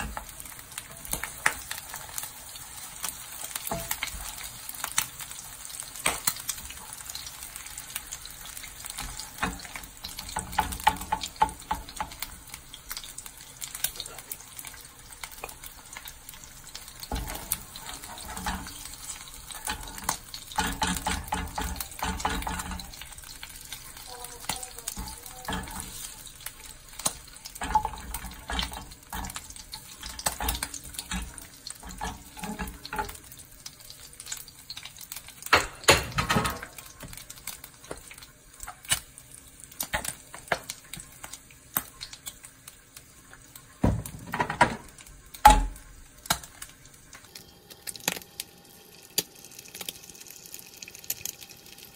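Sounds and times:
oil sizzling in frying pan: 0:00.0 - 0:51.9
spatula scraping pan: 0:16.9 - 0:33.3.

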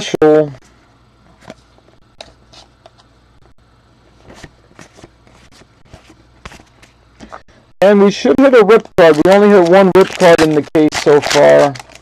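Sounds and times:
cards being flipped by hand: 0:09.1 - 0:12.0.

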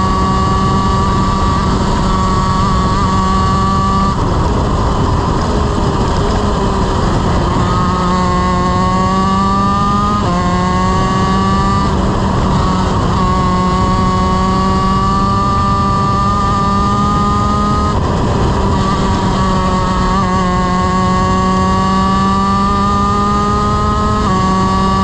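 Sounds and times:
kart engine revving high: 0:00.0 - 0:25.0
wind rush: 0:00.0 - 0:25.0.

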